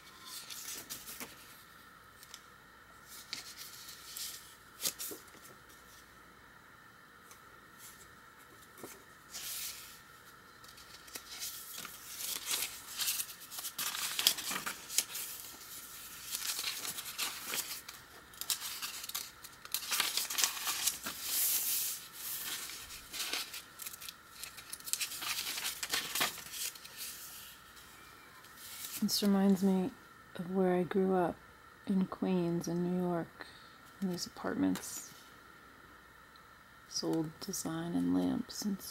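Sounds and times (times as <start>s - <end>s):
paper pages rustling: 0.0s - 2.4s, 3.0s - 6.1s, 7.8s - 10.0s, 10.6s - 27.9s, 28.5s - 29.3s.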